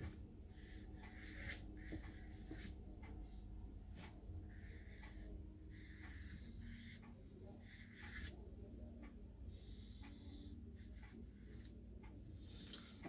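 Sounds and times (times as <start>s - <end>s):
brush scratching on paper: 0.0s - 2.8s, 7.6s - 8.3s.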